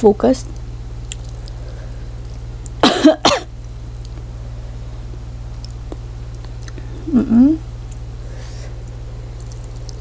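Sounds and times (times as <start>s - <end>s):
low electrical hum: 0.0s - 10.0s
woman coughing: 2.8s - 3.5s.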